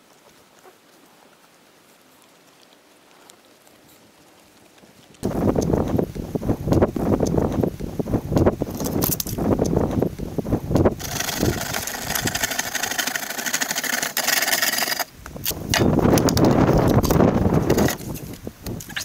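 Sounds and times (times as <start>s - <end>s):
metal box scraping on concrete: 11.0s - 15.1s, 17.6s - 18.0s.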